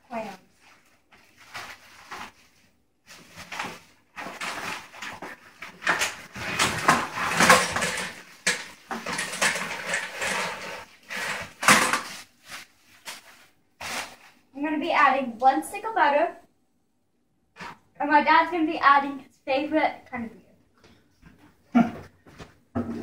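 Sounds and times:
shrimp clattering in metal pot: 5.8 - 12.1.

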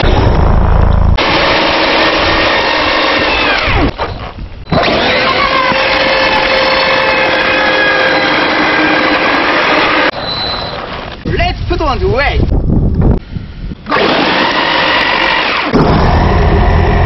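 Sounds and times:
electric motors whining: 1.2 - 11.2, 13.6 - 17.0.

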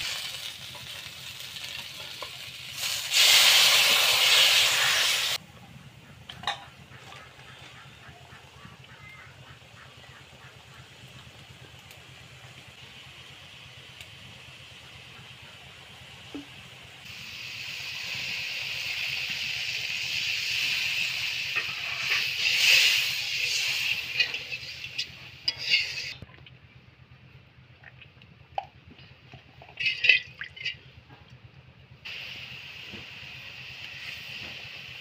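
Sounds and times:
hot oil sizzling: 0.0 - 5.4, 8.6 - 26.3, 32.0 - 35.0
metal spatula scraping pan: 21.5 - 26.2, 29.7 - 30.7.

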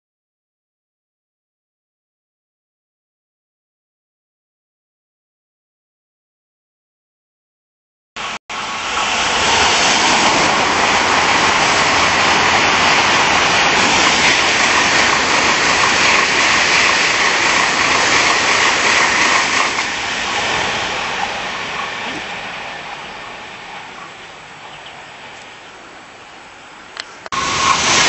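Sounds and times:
high-speed train rushing past: 8.2 - 28.0.

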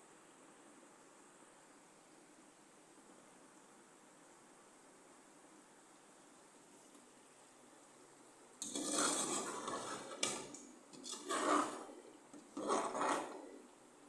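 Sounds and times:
metal spoon scraping pot: 8.6 - 13.7.

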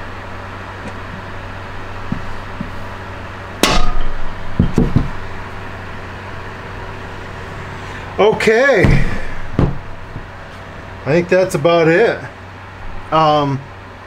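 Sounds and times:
hammer hitting metal: 3.6 - 5.2, 8.7 - 10.0
soft knocks: 8.4 - 10.3.

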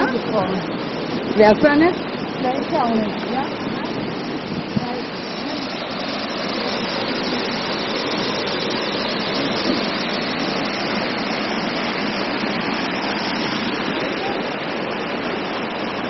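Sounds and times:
waterfall rushing over rocks: 0.0 - 16.0.

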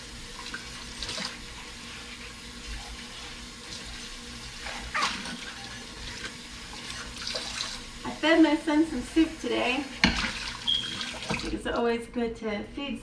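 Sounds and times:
faucet running into sink: 0.0 - 1.8, 2.4 - 11.7
dishes clattering: 10.0 - 11.5.

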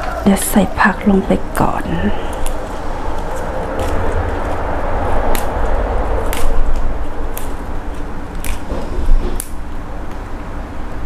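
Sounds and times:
low rumble and hiss: 0.0 - 11.0
leaf rustling: 1.5 - 9.6
stems snapping: 2.3 - 4.6, 5.2 - 10.3.

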